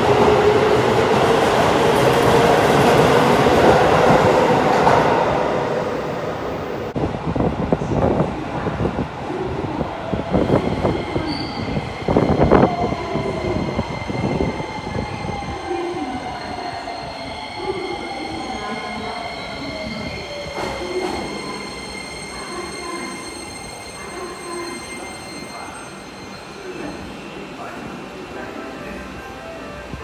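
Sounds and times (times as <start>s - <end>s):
high-pitched brake squeal: 11.2s - 11.8s, 19.4s - 27.4s.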